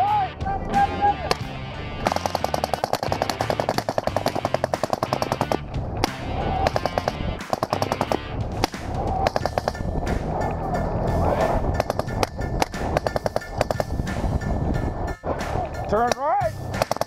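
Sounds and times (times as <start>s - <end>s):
automatic rifle fire: 2.0s - 5.6s, 6.6s - 8.2s, 16.8s - 17.0s.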